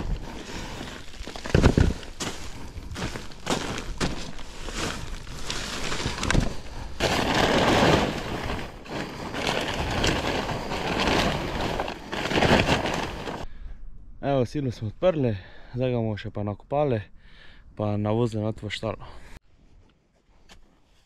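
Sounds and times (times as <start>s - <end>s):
plastic sheet crackling and rustling: 0.0s - 13.4s.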